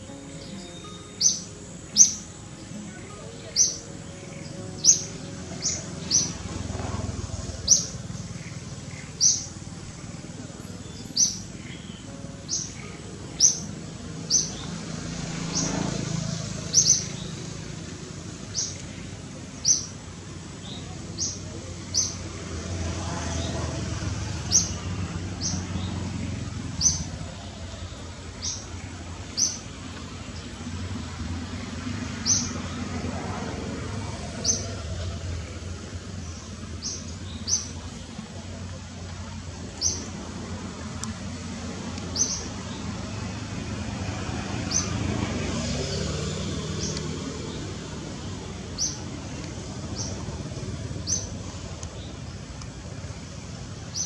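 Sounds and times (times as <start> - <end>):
bird chirping: 0.0 - 17.8, 18.4 - 20.0, 20.6 - 31.0, 31.9 - 33.1, 34.3 - 40.2, 42.0 - 42.9.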